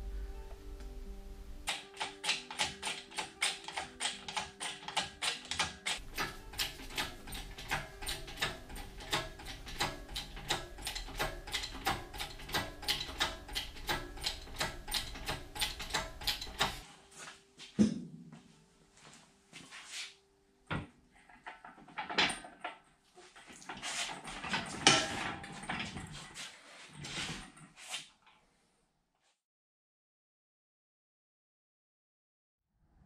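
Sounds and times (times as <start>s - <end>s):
ratchet clicking: 1.7s - 16.8s.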